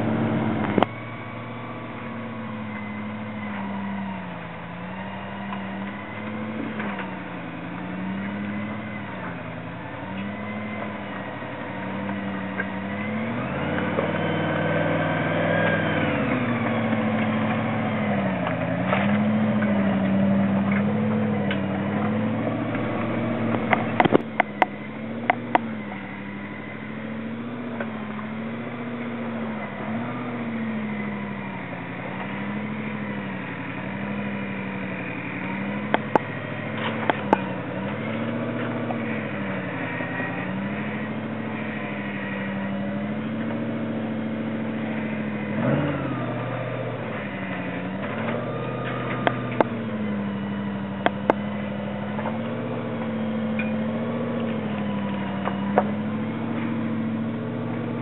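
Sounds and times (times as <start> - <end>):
engine crawling at low revs: 0.0 - 58.0
sharp clicks: 22.7 - 25.7.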